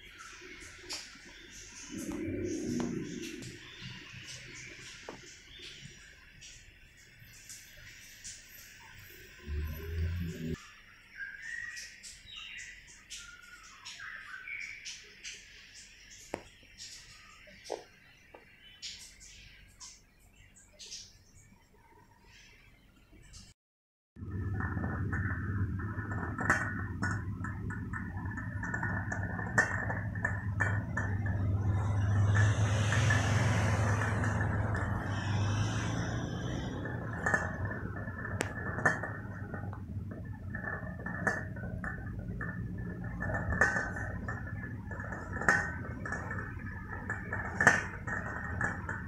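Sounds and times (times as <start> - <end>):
low hum: 0.0 - 7.0, 8.8 - 10.6, 24.2 - 49.0
rice cooker bubbling and ticking: 24.2 - 49.0
steam hissing: 35.0 - 36.8.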